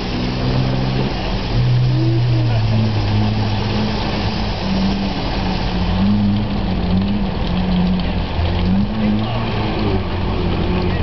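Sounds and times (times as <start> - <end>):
truck engine running: 0.0 - 11.0.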